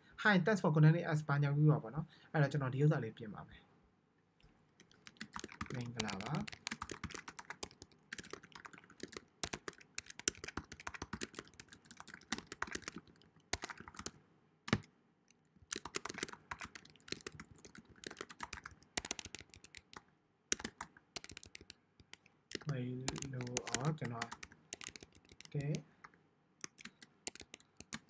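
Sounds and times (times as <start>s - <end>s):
keyboard key clicks: 4.8s - 13.0s, 15.7s - 25.8s, 26.6s - 28.0s.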